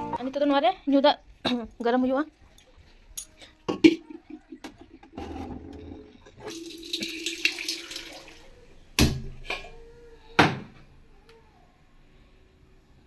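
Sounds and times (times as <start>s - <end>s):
water stream into metal pot: 0.4s - 8.5s.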